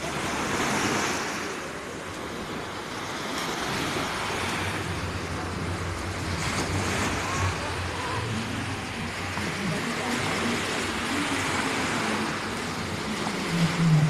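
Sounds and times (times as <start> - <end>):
sea waves breaking on shore: 0.0 - 14.0
low hum: 4.2 - 14.0.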